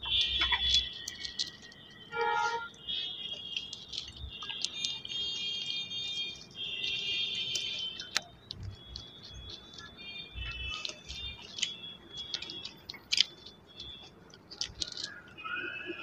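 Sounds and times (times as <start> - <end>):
soft clicks and taps of eating: 0.1 - 2.1, 3.3 - 15.4
faint high-pitched background music: 4.4 - 16.0.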